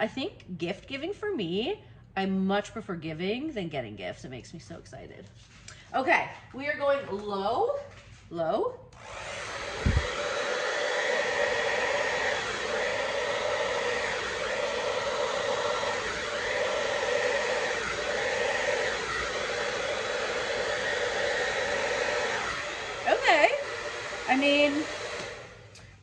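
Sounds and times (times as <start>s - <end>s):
hair dryer blowing: 9.0s - 26.0s.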